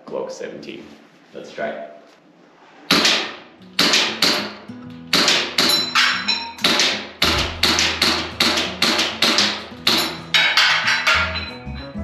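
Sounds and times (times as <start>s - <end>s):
airsoft pistol shots: 2.9s - 5.9s, 6.6s - 10.0s
background music: 3.5s - 12.0s.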